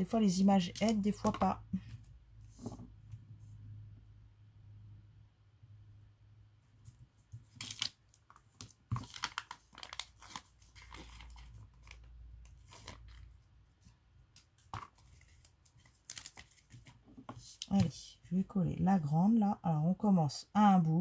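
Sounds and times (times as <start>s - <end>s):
paper sheet rustling and crinkling: 7.0s - 13.4s, 14.4s - 17.9s.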